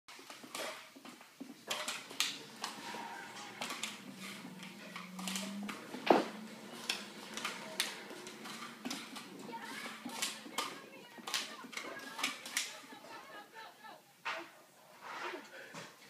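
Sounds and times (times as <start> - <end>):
puppy claws skittering on wood: 0.3 - 12.9.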